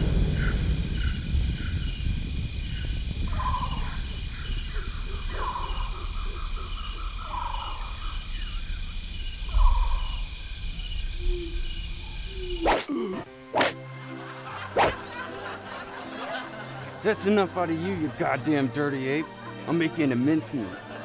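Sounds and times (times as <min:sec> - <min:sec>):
warbling animal calls: 0:03.3 - 0:08.8, 0:09.4 - 0:10.4, 0:11.1 - 0:13.8, 0:14.7 - 0:15.1.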